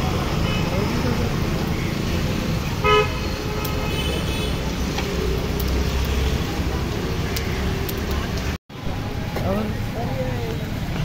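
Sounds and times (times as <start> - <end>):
street traffic rumble: 0.0 - 11.0
vehicle horn toot: 2.8 - 4.6.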